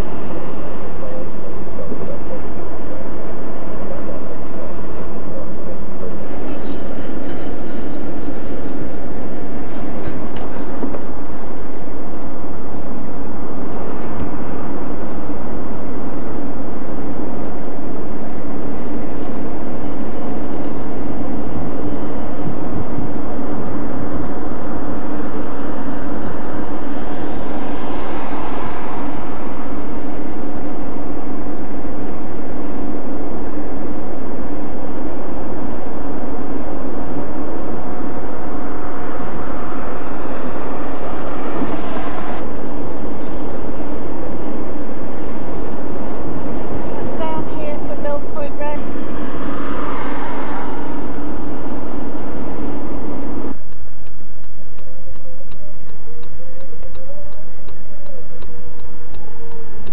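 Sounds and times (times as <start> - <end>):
coach engine drone: 0.0 - 59.9
road noise: 0.0 - 59.9
faint high tone: 57.0 - 58.4.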